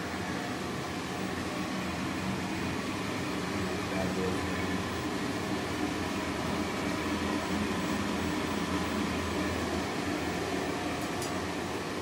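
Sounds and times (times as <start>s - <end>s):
fan whirring with low hum: 0.0s - 12.0s.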